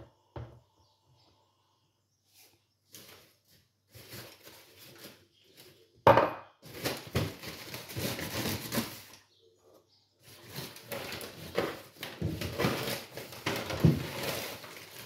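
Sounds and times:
soft rustling: 2.2 - 5.9
rustling and scraping: 2.2 - 6.0, 6.6 - 15.0.

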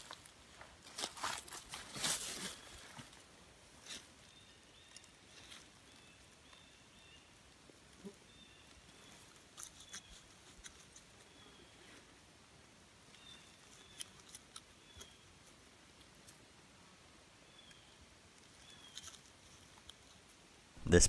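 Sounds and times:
moss rustling and crackling: 0.0 - 6.4.

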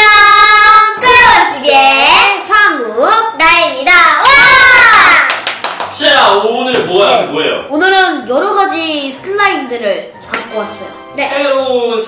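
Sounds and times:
children singing: 0.0 - 1.4.

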